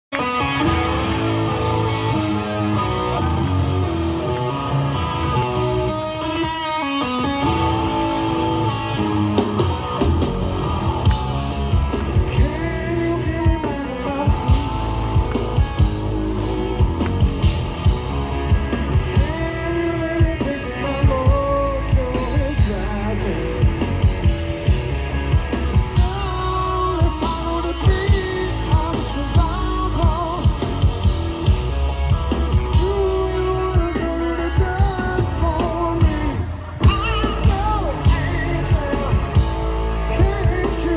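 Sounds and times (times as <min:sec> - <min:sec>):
bass guitar: 0:00.0 - 0:40.9
electric guitar: 0:00.0 - 0:40.9
drum kit: 0:07.3 - 0:40.9
man singing lead vocal: 0:11.1 - 0:16.6, 0:18.4 - 0:24.8, 0:25.7 - 0:31.2, 0:32.7 - 0:40.9.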